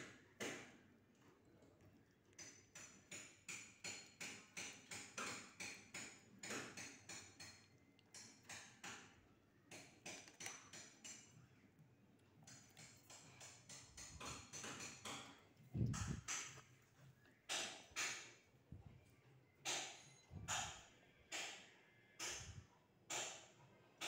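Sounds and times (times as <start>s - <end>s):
kitten licking and chewing food: 0.3s - 17.5s.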